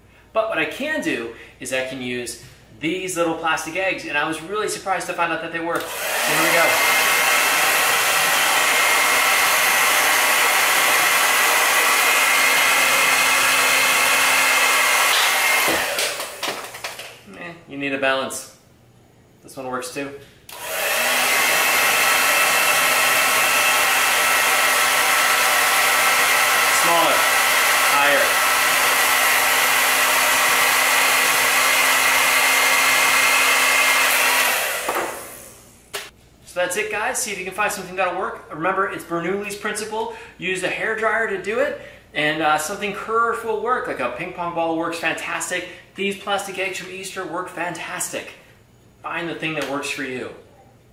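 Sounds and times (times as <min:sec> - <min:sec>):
hair dryer running: 0:05.8 - 0:17.2, 0:20.5 - 0:36.1
hair dryer switch click: 0:20.5 - 0:20.9.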